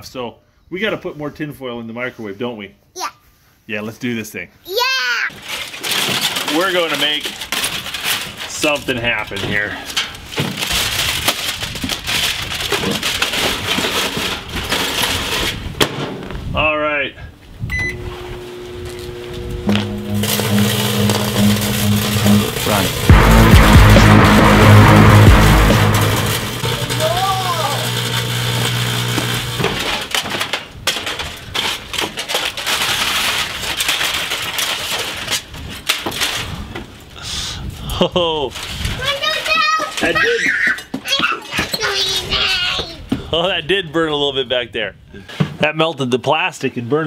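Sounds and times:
aluminium foil crinkling: 5.3 - 15.6, 26.6 - 36.6.

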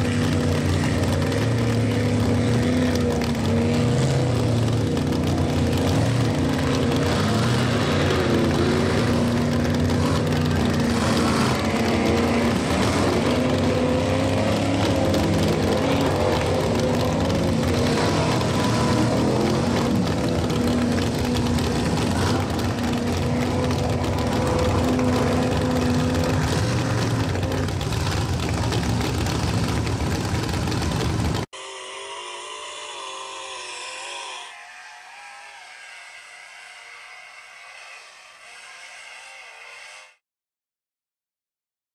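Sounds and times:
truck engine running hard: 0.0 - 31.5.

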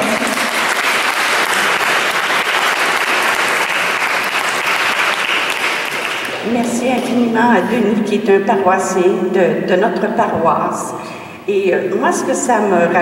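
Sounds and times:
people clapping: 0.0 - 7.3.

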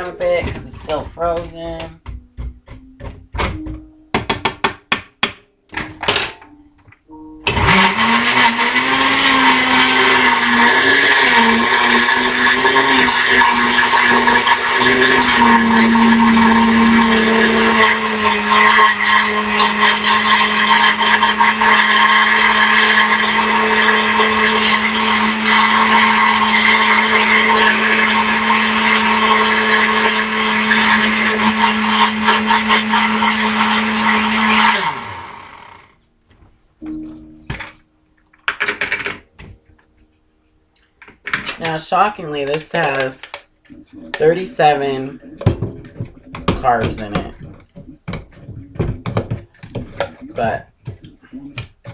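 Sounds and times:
blender motor whining: 7.5 - 36.0.

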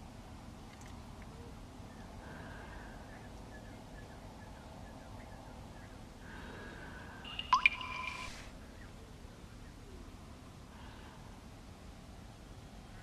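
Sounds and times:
faint steady hiss: 0.0 - 13.0
water drops plinking: 7.3 - 8.4.

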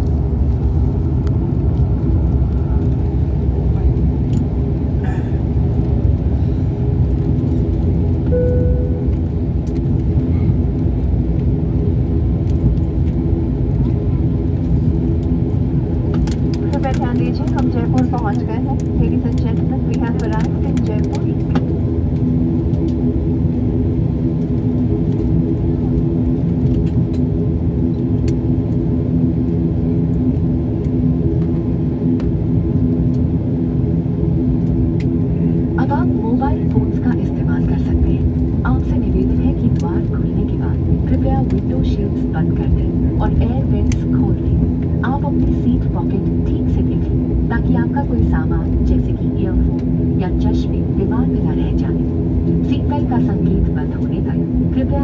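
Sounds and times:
jet engines rumbling: 0.0 - 55.0
steady tonal hum: 0.0 - 55.0
cabin tone: 8.3 - 9.1.

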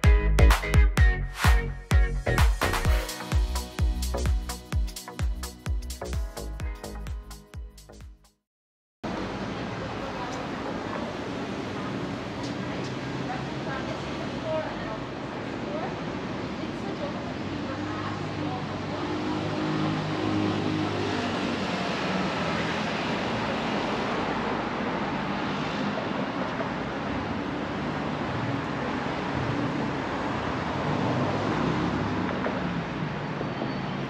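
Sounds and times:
city street traffic: 9.0 - 34.0.

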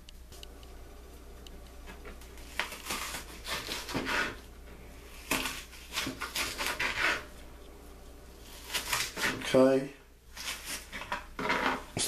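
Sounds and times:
knife slicing onion: 2.4 - 7.4, 8.4 - 9.6, 10.3 - 11.2.

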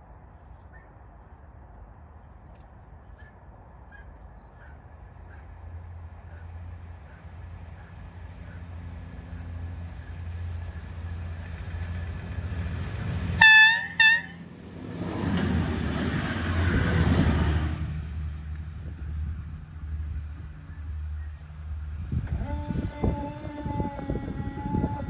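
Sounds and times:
diesel railbus engine drone: 0.0 - 25.0
train wheel noise: 7.7 - 25.0
train horn blasts: 13.4 - 14.5.

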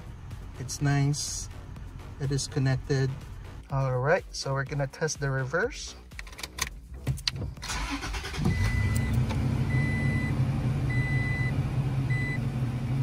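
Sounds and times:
truck engine starting and idling: 7.3 - 13.0
reverse warning chime beeps: 8.5 - 12.4.

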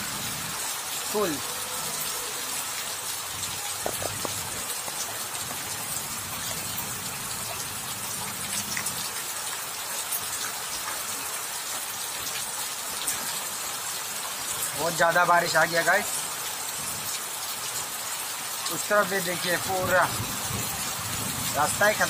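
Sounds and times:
heavy rain on floodwater: 0.0 - 22.0
raindrop ticks: 3.4 - 13.4.

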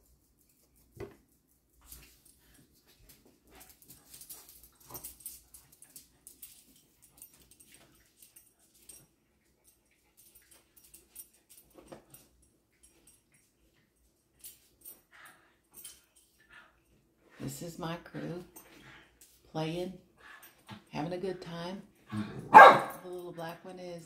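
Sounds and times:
dogs scuffling and rustling: 0.0 - 17.5.

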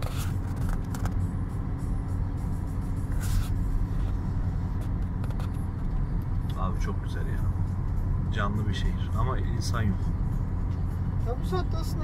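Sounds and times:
engine and tyre rumble: 0.0 - 12.0.

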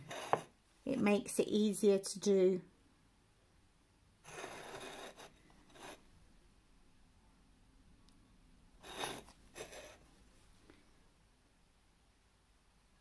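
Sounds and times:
ceramic tile scraping over wood: 0.0 - 0.6, 4.2 - 6.0, 8.8 - 10.0.

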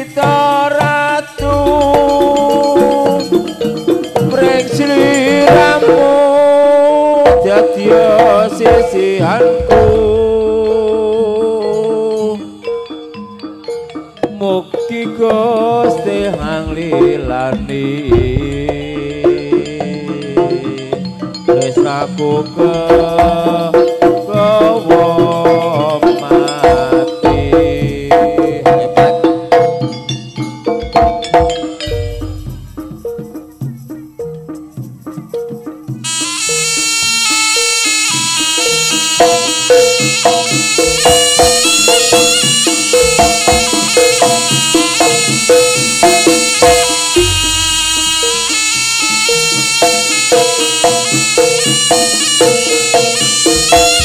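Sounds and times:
hand drumming: 0.0 - 12.4, 13.4 - 36.8, 38.1 - 54.0
loud held melodic line: 0.0 - 54.0.

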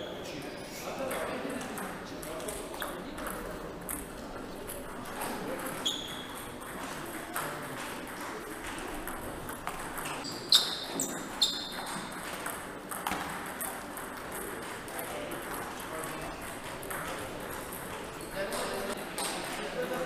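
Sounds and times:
table tennis balls clicking: 1.1 - 19.6
murmur of voices: 14.8 - 20.0.

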